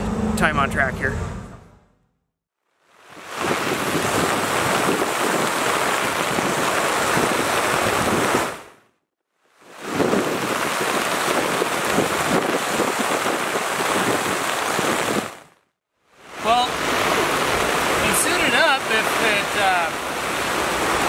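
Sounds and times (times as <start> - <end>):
heavy rain pouring: 3.0 - 8.8, 9.5 - 15.6, 16.2 - 21.0.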